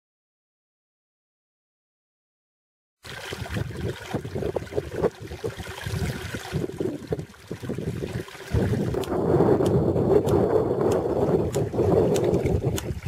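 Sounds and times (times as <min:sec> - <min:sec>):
water trickling over rocks: 0:03.0 - 0:09.3, 0:10.7 - 0:13.0
wind rumbling on microphone: 0:03.1 - 0:13.0.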